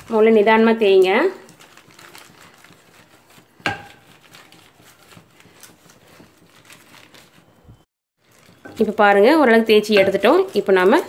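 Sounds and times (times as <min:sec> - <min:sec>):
plastic sheet crinkling: 0:00.0 - 0:11.0
rolling pin tapping: 0:09.8 - 0:10.5.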